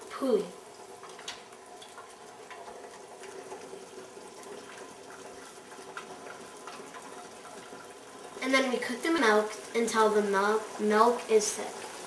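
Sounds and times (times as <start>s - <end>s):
milk bubbling in saucepan: 0.0s - 12.0s.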